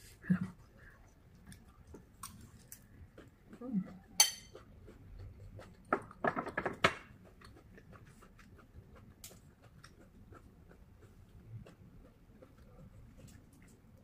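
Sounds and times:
faint chewing: 0.3s - 14.0s
metal spoon clinking on dishes: 4.2s - 4.6s.

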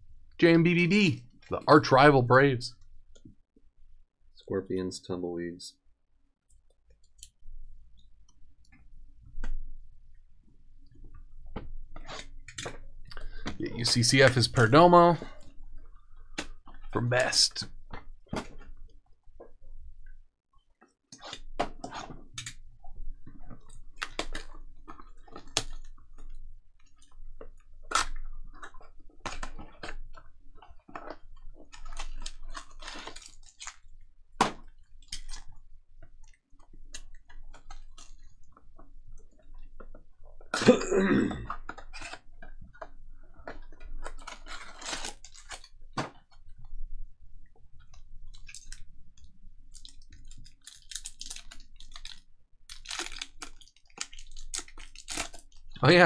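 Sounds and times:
card packs clicking and crinkling: 43.5s - 46.5s, 47.9s - 56.0s.

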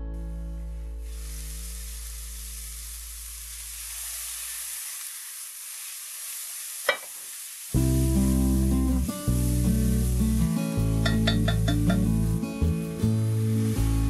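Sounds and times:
background music: 0.0s - 1.5s, 7.8s - 14.0s
vegetables sizzling in pot: 0.9s - 14.0s.

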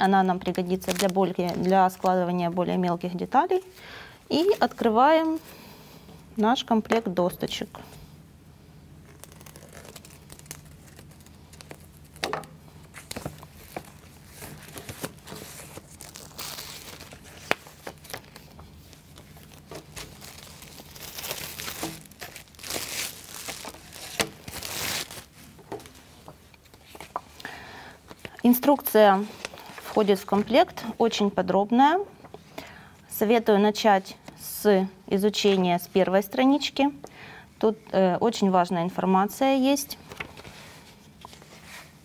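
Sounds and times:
plastic film crinkling and tearing: 0.4s - 2.2s, 9.0s - 26.0s
paper sheets rustling: 12.9s - 27.3s, 28.1s - 30.7s, 40.0s - 42.0s.

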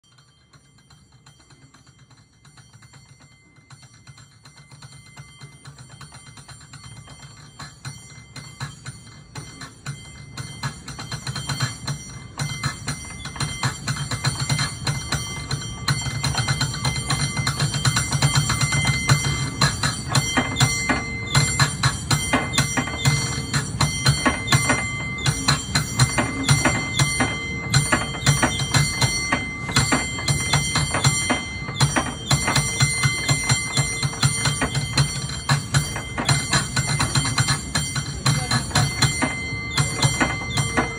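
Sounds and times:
cable car bell clanging rapidly: 0.0s - 40.9s.

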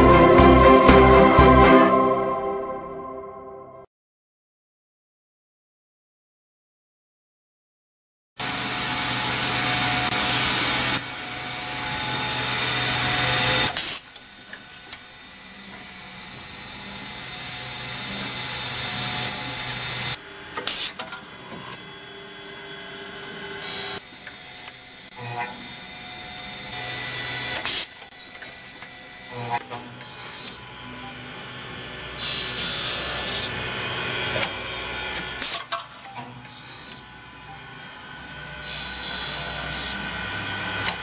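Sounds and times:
spindles drilling and milling: 8.4s - 41.0s.

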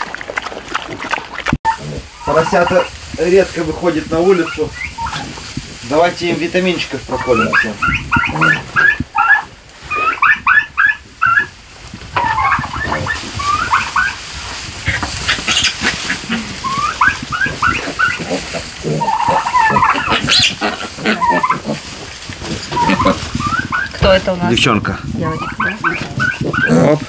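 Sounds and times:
piglets squealing: 1.7s - 3.0s, 4.2s - 5.4s, 7.0s - 11.6s, 12.2s - 14.2s, 14.9s - 21.9s, 22.6s - 24.1s, 25.2s - 27.0s.

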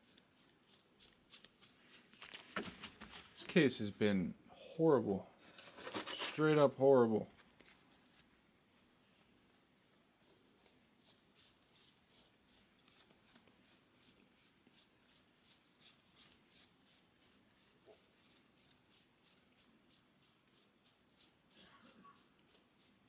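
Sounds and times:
cards flipped by hand: 0.1s - 3.4s, 7.3s - 8.3s.

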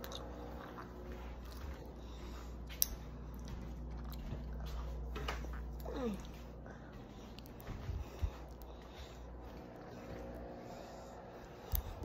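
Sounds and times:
person chewing candy: 0.0s - 10.5s, 11.4s - 12.0s
steady low hum: 0.0s - 12.0s.

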